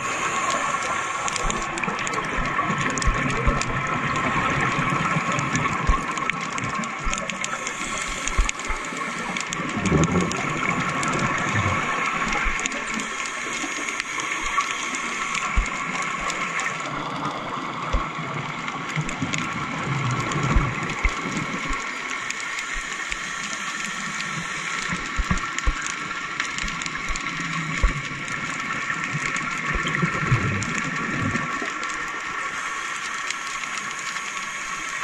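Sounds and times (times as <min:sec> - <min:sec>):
bubbling from divers' exhalations: 0:00.0 - 0:22.0, 0:26.7 - 0:32.3
steady underwater hum: 0:00.0 - 0:35.0.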